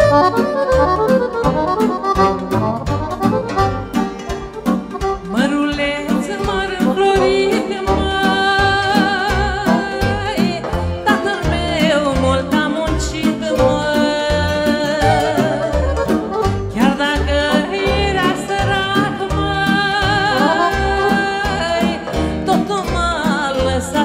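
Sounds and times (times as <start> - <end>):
folk band playing over a beat: 0.0 - 24.0
woman singing with vibrato: 5.2 - 24.0.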